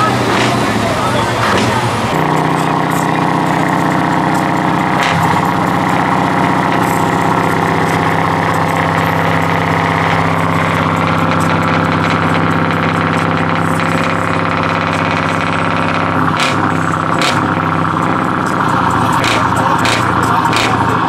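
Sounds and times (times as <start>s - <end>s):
truck engine idling: 0.0s - 21.0s.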